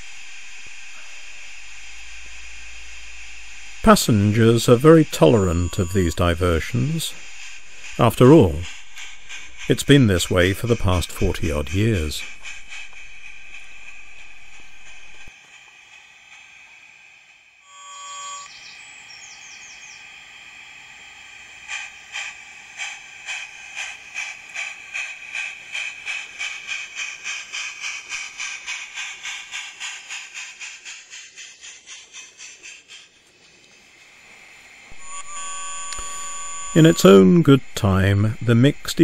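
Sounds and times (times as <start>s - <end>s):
model steam locomotive whistle: 0.0s - 8.8s, 9.6s - 12.4s, 17.6s - 20.0s, 34.2s - 39.0s
model steam locomotive chuffing: 0.0s - 39.0s.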